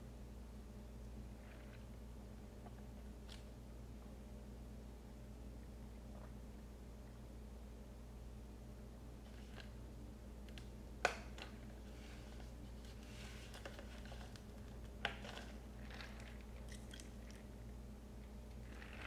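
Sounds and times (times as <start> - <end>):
low steady hum: 0.0 - 19.0
faint chewing and mouth noises: 1.3 - 3.5, 11.4 - 19.0.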